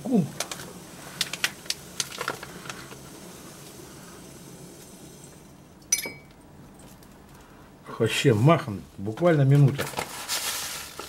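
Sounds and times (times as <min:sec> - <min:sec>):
sharp ringing clink: 0:05.9 - 0:06.4.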